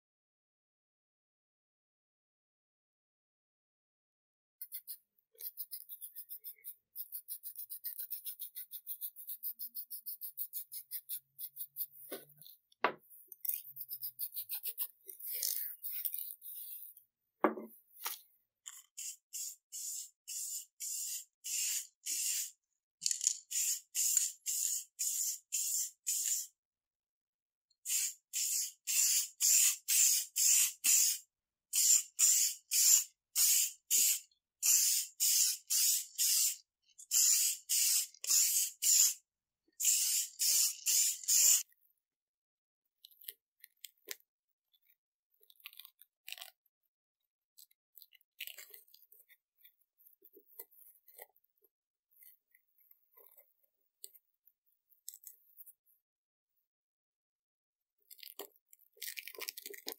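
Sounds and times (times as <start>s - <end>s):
spray paint can hissing: 4.6s - 12.2s, 13.6s - 16.8s, 18.9s - 26.5s, 27.9s - 39.2s, 39.8s - 41.6s.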